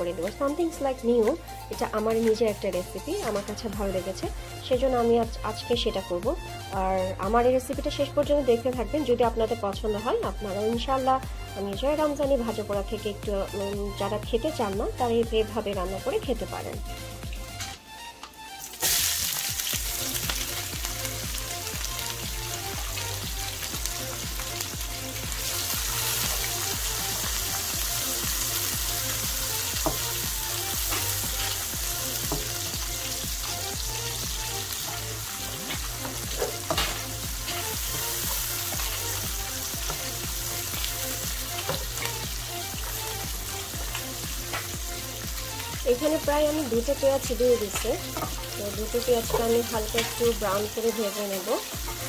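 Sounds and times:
onions sizzling in hot oil: 18.6 - 52.0.

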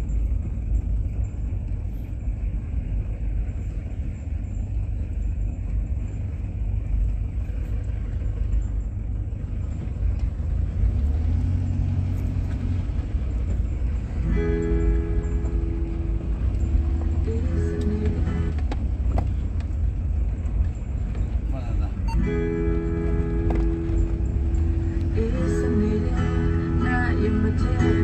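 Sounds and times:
car engine and tyre rumble: 0.0 - 28.0
music: 14.2 - 18.6, 22.1 - 28.0.

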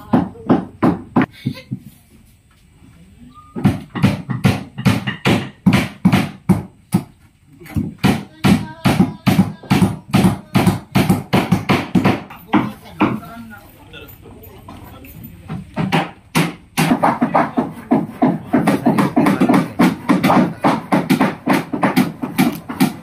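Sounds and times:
hammer blows on wooden hull: 7.8 - 13.2, 15.8 - 23.0.

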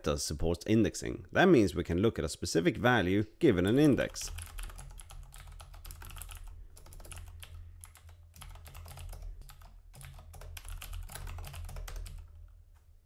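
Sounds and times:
typing on computer keyboard: 3.7 - 12.6.

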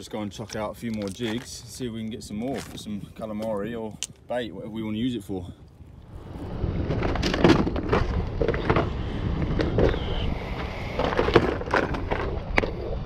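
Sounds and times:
low rumble: 5.8 - 13.0.

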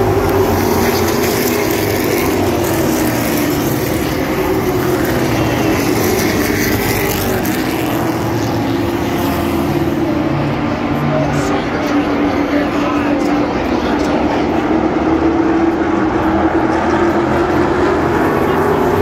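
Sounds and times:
race car engines: 0.0 - 19.0.

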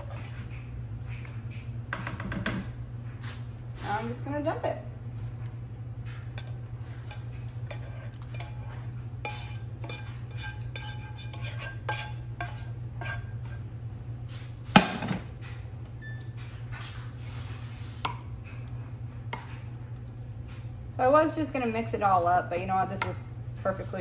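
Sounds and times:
steady low hum: 0.0 - 24.0
spatula scraping sauce from skillet: 6.1 - 13.7.

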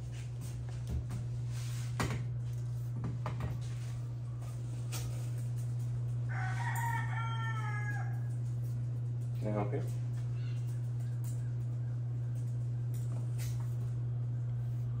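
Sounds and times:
low hum: 0.0 - 15.0
rooster crowing: 6.2 - 8.6.

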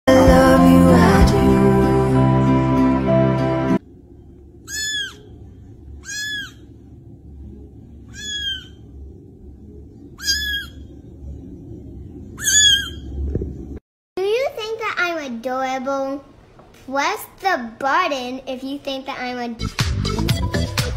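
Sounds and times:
faint low hum: 3.8 - 19.6
kitten mewing: 4.7 - 5.2, 6.0 - 6.6, 8.1 - 8.8.

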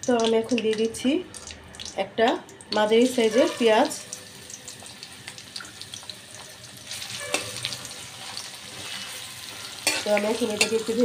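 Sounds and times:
onion sizzling in hot oil: 0.0 - 11.0
spatula stirring onion: 6.7 - 11.0.

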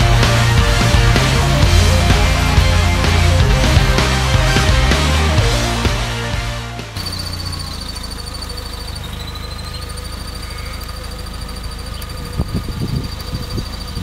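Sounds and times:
thin high whine: 0.0 - 10.9
car engine idling: 0.0 - 14.0.

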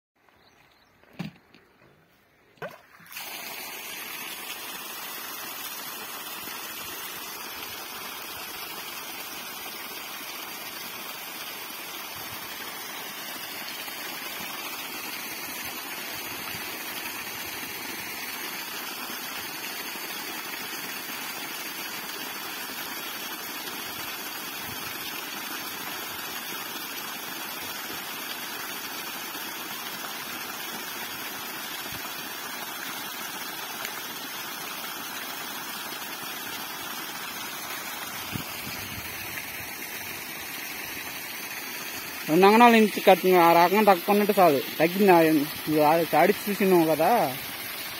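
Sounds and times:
water gushing and splashing: 2.6 - 47.9.

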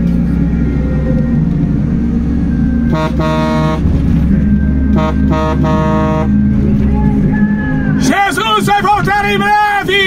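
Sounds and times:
vehicle driving rumble: 0.0 - 10.0
vehicle horn honking: 2.8 - 4.1, 4.8 - 6.5.

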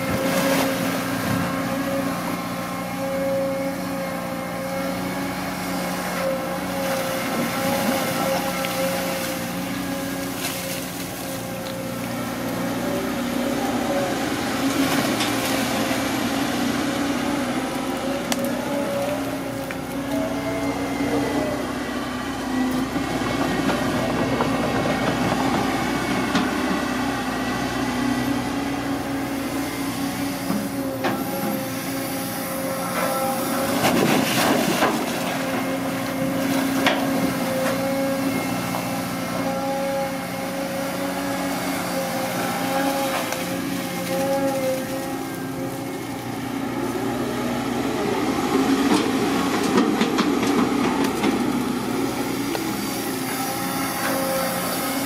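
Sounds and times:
excavator diesel engine running: 0.0 - 55.0
bucket scooping mud and water: 33.7 - 35.6.

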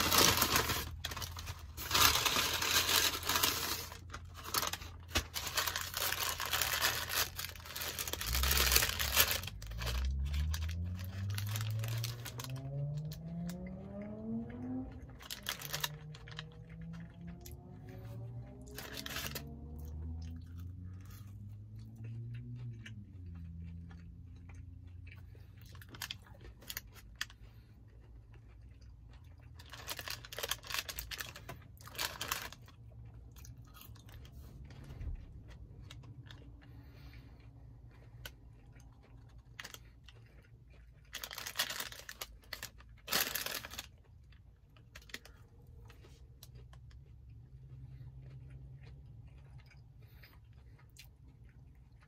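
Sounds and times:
paper bag crinkling: 0.0 - 12.6, 15.2 - 16.5, 18.2 - 19.5, 29.6 - 32.7, 41.1 - 43.9
crunchy chewing: 0.0 - 52.0
low steady hum: 0.0 - 52.0.

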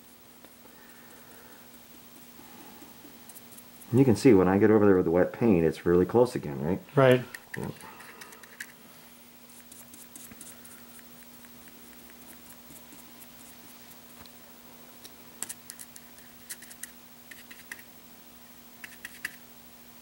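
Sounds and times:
paintbrush scratching and clicking: 1.6 - 4.1, 7.3 - 8.8, 9.5 - 14.0, 15.4 - 17.9, 18.8 - 19.4.

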